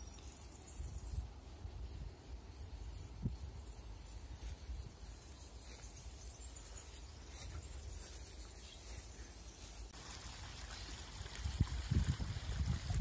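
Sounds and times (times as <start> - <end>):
water trickling and bubbling: 9.9 - 13.0.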